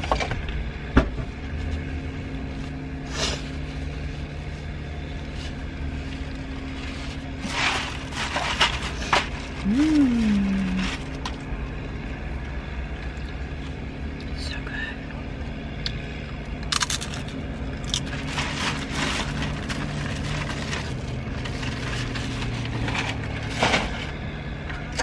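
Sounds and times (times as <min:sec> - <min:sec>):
steady low hum: 0:00.0 - 0:25.0
plastic bag crinkling: 0:06.9 - 0:11.3, 0:16.8 - 0:22.5.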